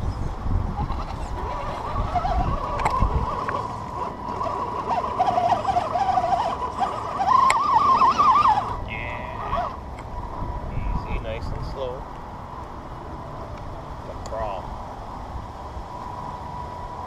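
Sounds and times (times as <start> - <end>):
electric motor whining: 0.0 - 10.2.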